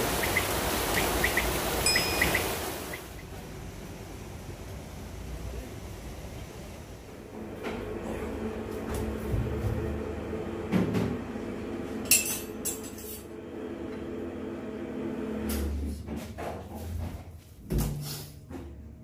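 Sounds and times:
utensils and dishes clinking: 12.1s - 13.3s.

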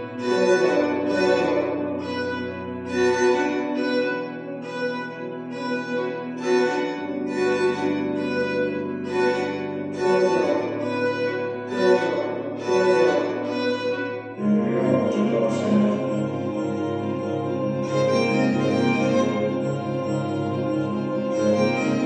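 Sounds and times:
string quartet playing minimalist music: 0.0s - 22.0s.

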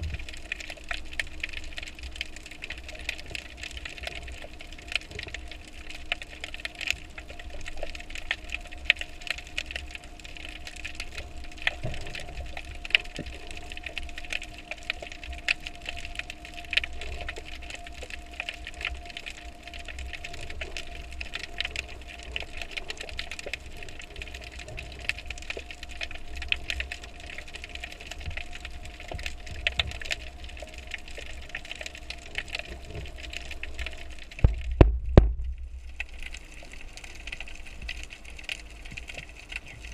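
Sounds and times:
low rumble: 0.0s - 0.5s, 32.7s - 37.6s
faint steady hums: 0.0s - 39.9s
underwater clicks and ticks: 0.0s - 39.9s.

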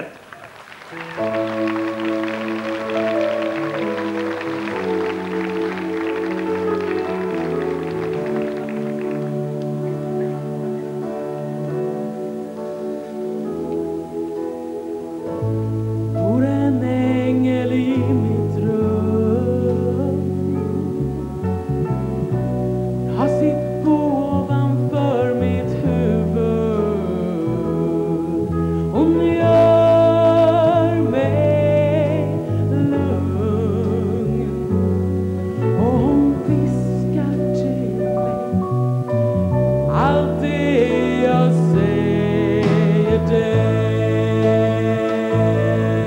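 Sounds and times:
instrumental accompaniment: 0.0s - 46.0s
woman singing with vibrato: 16.2s - 21.2s, 23.1s - 34.8s, 35.7s - 38.5s, 39.9s - 46.0s.

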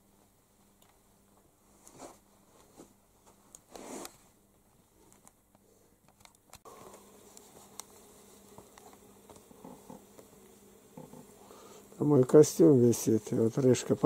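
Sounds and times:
faint fabric rustles: 0.0s - 5.9s, 6.8s - 12.1s.

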